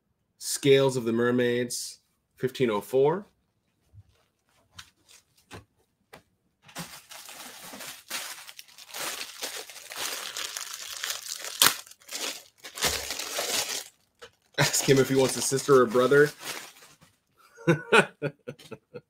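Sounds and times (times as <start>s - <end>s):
plastic bag crinkling: 6.7s - 17.1s.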